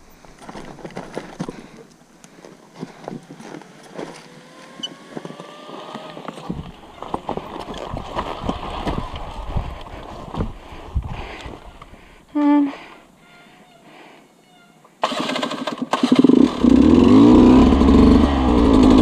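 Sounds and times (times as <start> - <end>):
motorcycle clattering over rocks: 0.4 - 1.8, 6.2 - 10.6
motorcycle engine running: 15.0 - 19.0.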